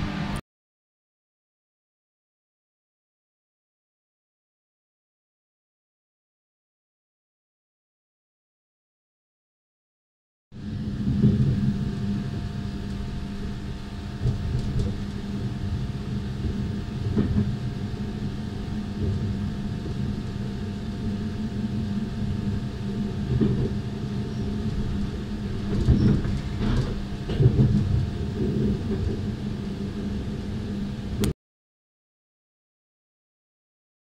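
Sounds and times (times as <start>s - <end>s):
steady hum: 0.0s - 0.4s, 10.6s - 31.4s
train wheels rumbling on rails: 10.9s - 30.8s.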